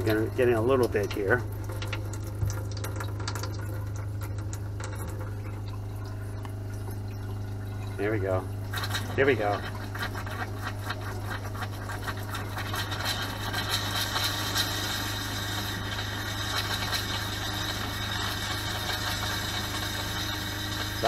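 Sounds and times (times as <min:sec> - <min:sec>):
water splashing on plastic: 0:00.0 - 0:16.0
water pump humming: 0:00.0 - 0:21.0
water sputtering from faucet: 0:00.0 - 0:21.0.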